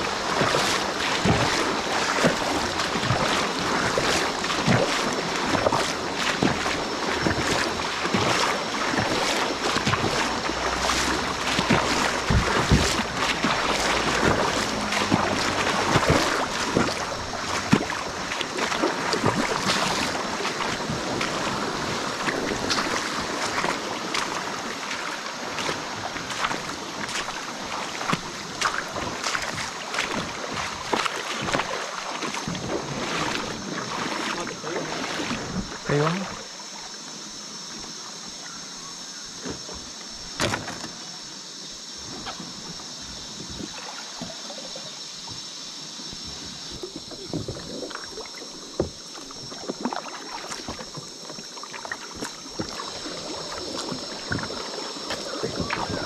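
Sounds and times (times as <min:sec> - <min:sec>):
paddle splashes and knocks: 0:00.0 - 0:56.0
water splashing around kayak: 0:00.0 - 0:56.0.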